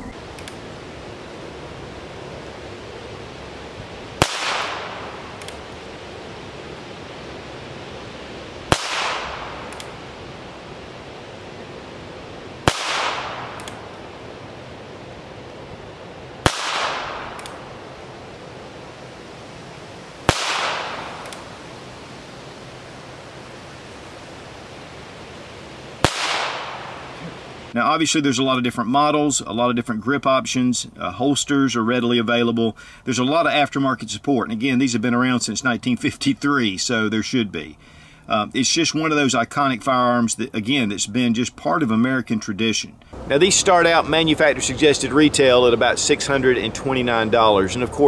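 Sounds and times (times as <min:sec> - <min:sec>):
faint click: 0:00.3 - 0:00.6, 0:21.2 - 0:21.4
revolver shots echoing: 0:04.1 - 0:06.2, 0:08.6 - 0:10.3, 0:12.5 - 0:14.6, 0:15.9 - 0:18.7, 0:20.2 - 0:22.4, 0:25.9 - 0:27.7.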